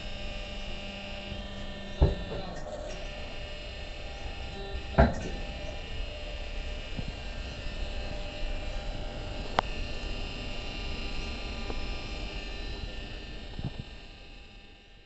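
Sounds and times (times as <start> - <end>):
hydraulic power pack humming: 0.0 - 15.0.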